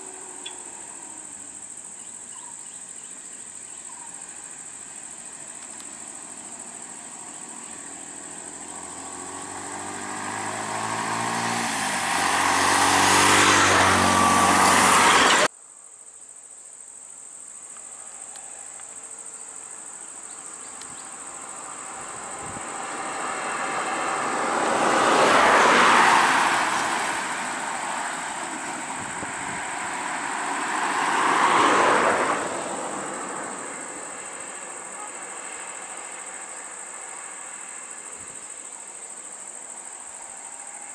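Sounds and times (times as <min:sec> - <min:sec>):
high-pitched insect drone: 0:00.0 - 0:11.3
vehicles driving past: 0:04.2 - 0:15.5, 0:18.5 - 0:40.9.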